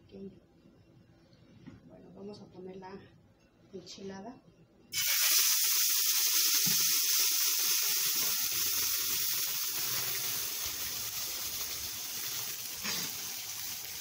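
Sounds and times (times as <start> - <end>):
sauce sizzling in a frying pan: 5.0 - 14.0.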